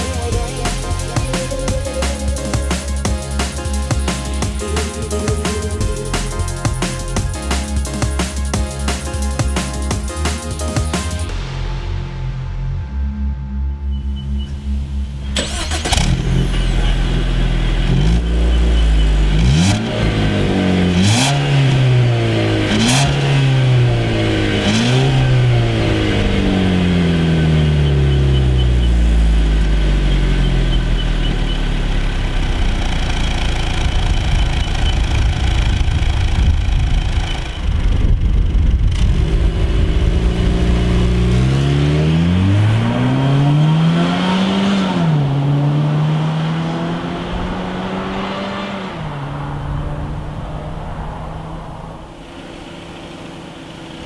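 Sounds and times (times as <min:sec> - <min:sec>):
car engine idling and revving: 0:00.0 - 0:54.0
car accelerating away: 0:13.9 - 0:37.4, 0:38.0 - 0:54.0.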